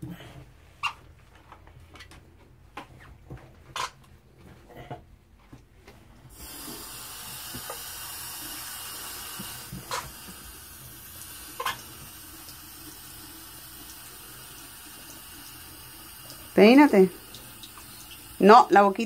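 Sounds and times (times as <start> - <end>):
faucet water running into basin: 6.3 - 19.0.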